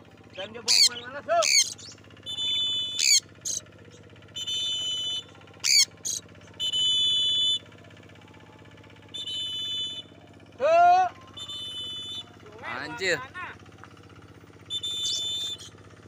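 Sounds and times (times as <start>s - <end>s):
parrot squawking: 0.4s - 3.6s, 5.6s - 6.2s, 14.8s - 15.7s.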